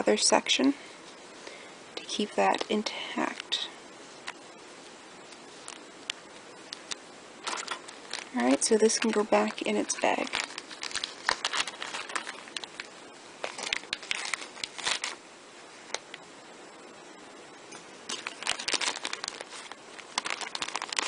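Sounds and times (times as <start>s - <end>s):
plastic bag crinkling: 6.7s - 15.2s, 18.1s - 21.0s.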